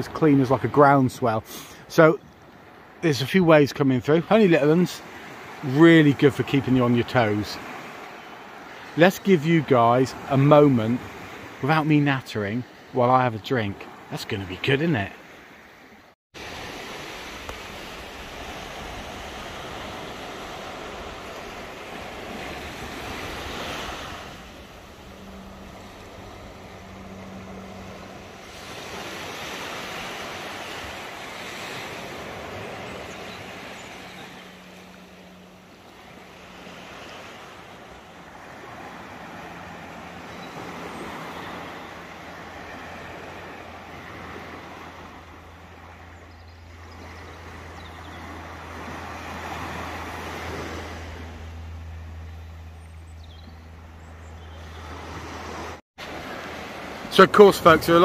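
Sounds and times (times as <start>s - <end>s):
small waves breaking on beach: 0.0s - 58.0s.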